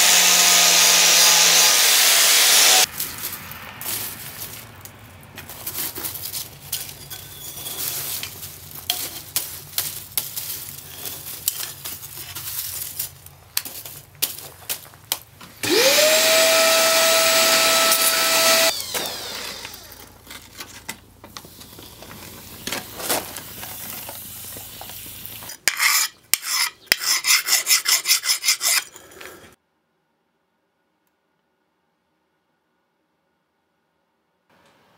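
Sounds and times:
coal forge crackling: 2.8 - 27.0
steel scraping in coals: 2.8 - 29.6.

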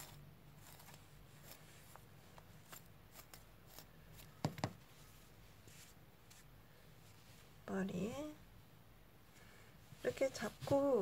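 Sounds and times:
hands handling crocheted doll: 0.0 - 7.6.

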